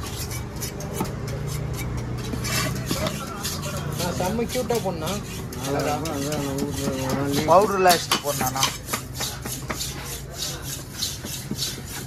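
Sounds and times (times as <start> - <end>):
knocks and clatter: 0.0 - 3.4.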